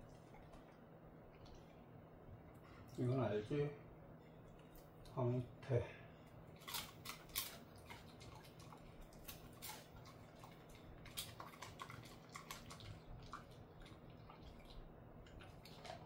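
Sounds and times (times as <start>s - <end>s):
dog chewing crunchy treat: 6.5s - 16.0s.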